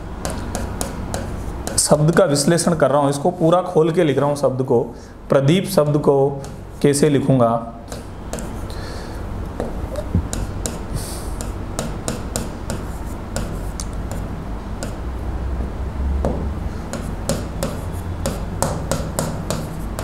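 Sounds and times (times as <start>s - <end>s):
steady low hum: 0.0s - 20.0s
writing taps and scratches: 0.2s - 2.4s, 7.9s - 8.7s, 9.6s - 15.0s, 16.9s - 20.0s.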